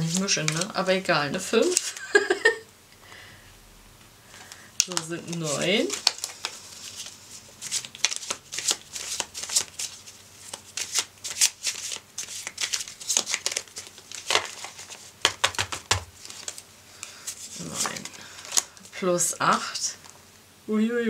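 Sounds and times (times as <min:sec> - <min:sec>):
playing cards being shuffled: 0:00.0 - 0:00.8, 0:01.5 - 0:02.3, 0:04.4 - 0:18.9.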